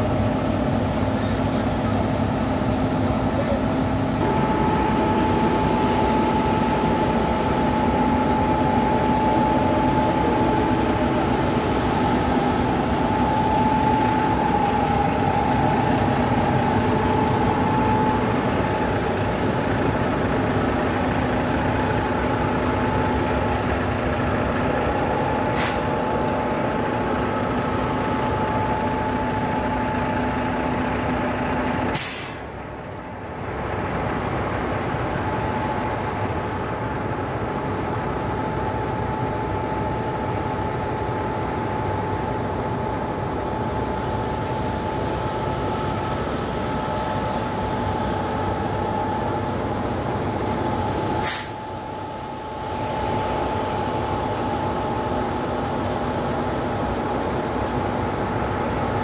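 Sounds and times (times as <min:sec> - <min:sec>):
diesel truck machinery droning: 0:00.0 - 0:59.0.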